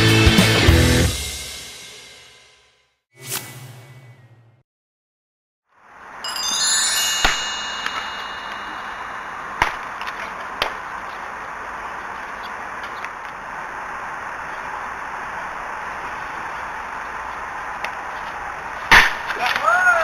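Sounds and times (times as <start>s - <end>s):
steady outdoor hiss: 5.8s - 20.0s
chime-like ringing tones: 6.2s - 10.2s.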